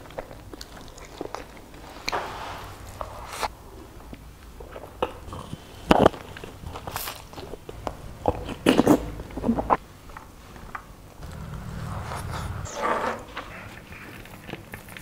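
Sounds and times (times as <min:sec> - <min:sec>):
person chewing wetly: 0:00.0 - 0:01.8.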